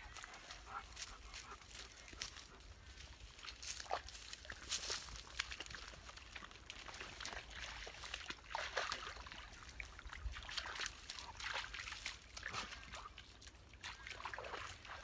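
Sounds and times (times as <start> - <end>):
dog splashing through water: 3.3 - 15.0.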